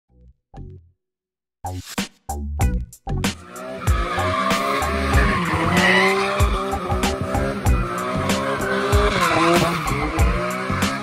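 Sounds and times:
music with steady beat: 0:01.6 - 0:11.0
car engine revving: 0:03.3 - 0:11.0
tyres skidding and squealing: 0:03.4 - 0:11.0.

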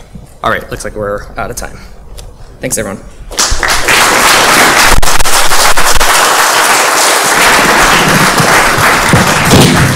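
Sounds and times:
audience applauding: 0:03.4 - 0:09.9.

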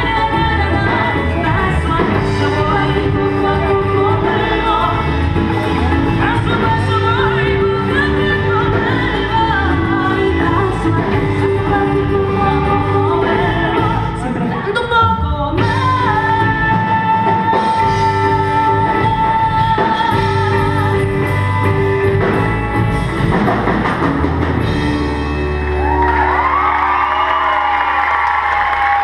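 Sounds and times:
woman singing lead: 0:00.0 - 0:23.0
live pop-rock band with drums: 0:00.0 - 0:29.0.

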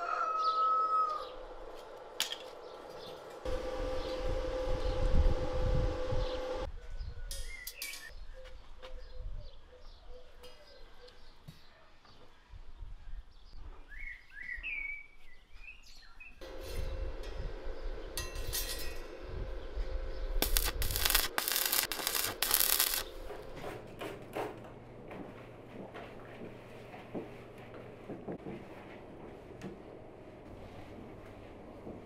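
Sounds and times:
low steady hum: 0:02.0 - 0:06.7, 0:16.4 - 0:24.0
arc welding crackling: 0:20.2 - 0:23.6.

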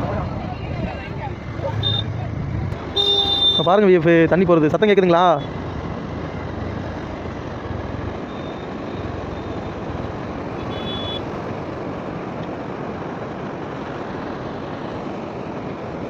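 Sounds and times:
river water roaring through dam: 0:03.7 - 0:16.0.

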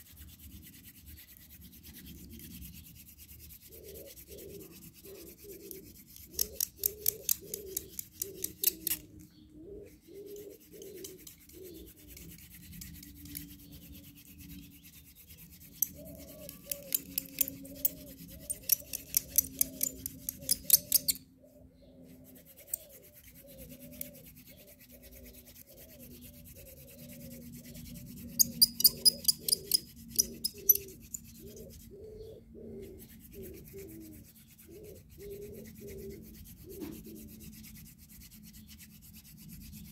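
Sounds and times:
wooden spindle grinding on board: 0:00.9 - 0:09.1, 0:10.2 - 0:21.2.

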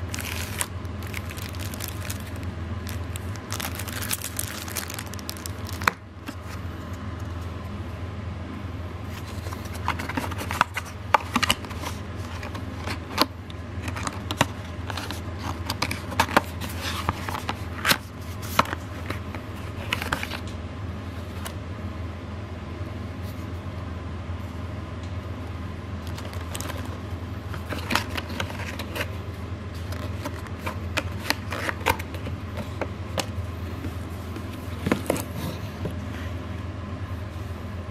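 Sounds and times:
hands handling cardboard box: 0:00.0 - 0:06.6, 0:29.8 - 0:36.0
low hum: 0:00.0 - 0:10.0.

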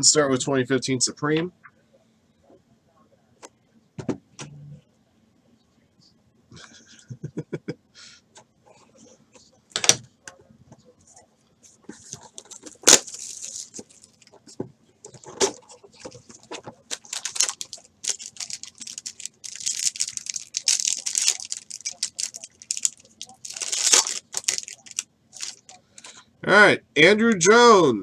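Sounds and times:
plastic wrapping crinkling: 0:12.0 - 0:26.1
plastic wrapping snapping: 0:12.4 - 0:14.3, 0:16.9 - 0:25.8.

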